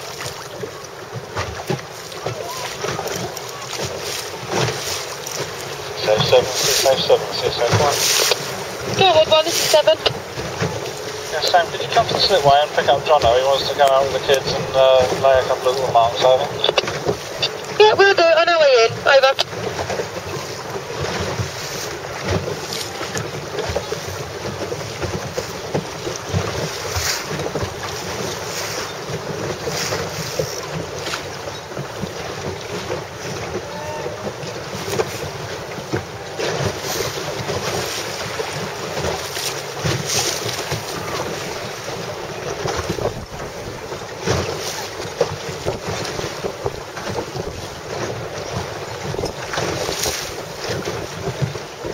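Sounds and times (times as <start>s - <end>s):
choppy sea water: 0.0s - 51.9s
wind buffeting microphone: 19.6s - 51.9s.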